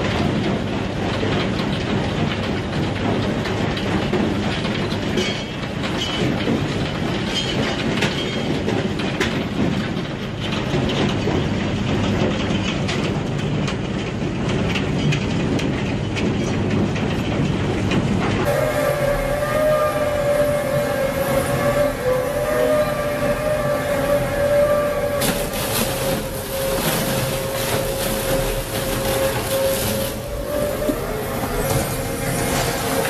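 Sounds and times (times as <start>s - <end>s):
metal clanks and clatter: 0.0s - 18.5s, 25.2s - 33.0s
heavy machinery rumbling: 0.0s - 33.0s
sustained hooting tone: 18.5s - 32.2s.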